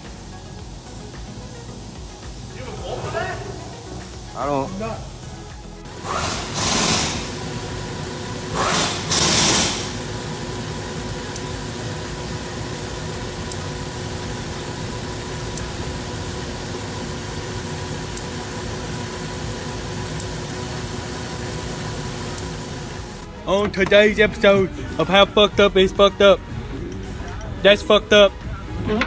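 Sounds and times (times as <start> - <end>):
faint engine whine: 0.0 - 23.4
loud rushes of noise: 0.0 - 23.4
car engine idling: 0.0 - 28.7
light ticking: 9.9 - 23.3.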